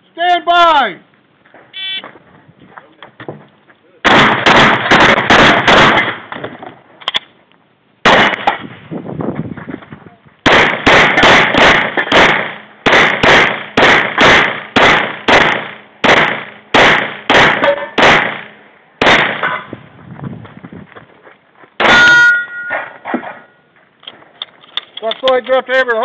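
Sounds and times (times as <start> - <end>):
pistol shots: 4.0 - 6.4, 8.0 - 8.7, 10.4 - 19.7, 21.8 - 22.3
metallic clangs of steel targets: 17.0 - 18.6, 19.3 - 19.8, 21.8 - 23.6
ringing metallic bang: 21.8 - 23.7.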